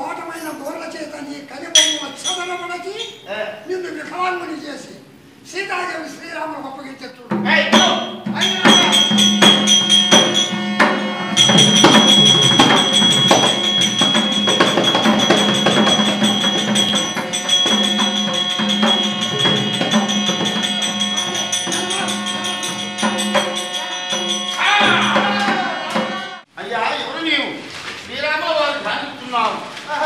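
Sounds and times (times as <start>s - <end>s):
jingling cymbals: 1.7s - 3.3s, 7.7s - 26.2s
sharp percussive clacks: 1.8s - 2.9s, 7.7s - 26.3s
steady held note: 1.8s - 3.1s, 7.8s - 26.5s.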